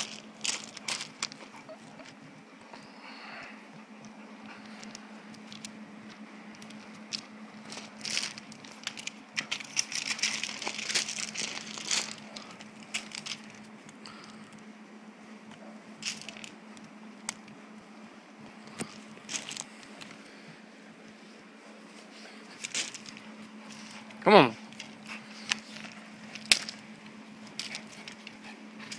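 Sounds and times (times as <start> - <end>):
dog paws on gravel: 0.0 - 2.2, 4.5 - 14.4, 16.0 - 17.6, 18.5 - 20.3, 21.8 - 28.9
rope toy rustling: 0.0 - 2.2, 4.5 - 14.6, 16.0 - 17.6, 18.5 - 20.3, 21.7 - 28.9
faint steady hum: 0.0 - 28.9.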